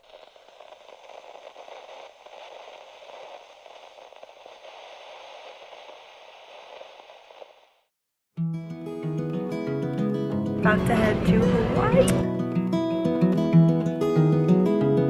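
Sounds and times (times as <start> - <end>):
crackling static: 0.0 - 7.9.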